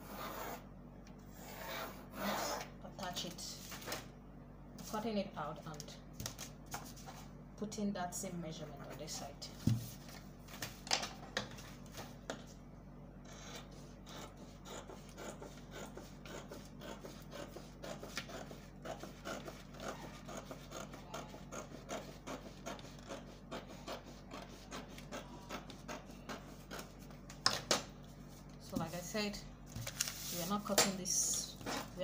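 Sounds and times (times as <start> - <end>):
pencil scratching on paper: 0.0 - 0.6, 1.3 - 2.7, 13.3 - 27.1.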